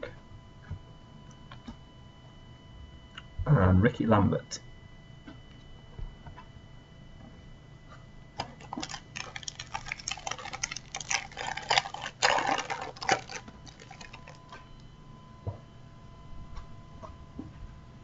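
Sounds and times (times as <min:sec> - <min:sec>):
foil packet tearing and crinkling: 0:08.5 - 0:14.5.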